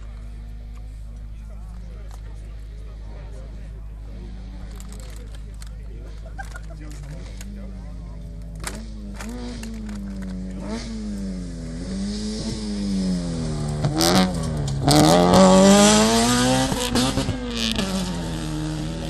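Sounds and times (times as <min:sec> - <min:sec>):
rally car engine revving: 0:00.0 - 0:19.0.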